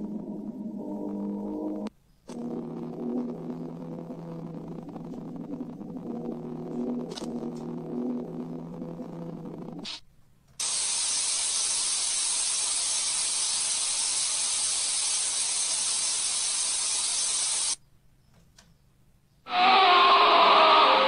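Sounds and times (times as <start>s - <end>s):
high static hiss: 0.0s - 17.8s.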